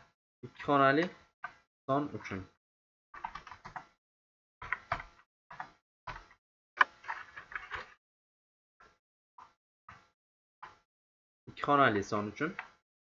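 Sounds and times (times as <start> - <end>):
computer keyboard typing: 3.2 - 4.0, 4.6 - 6.4.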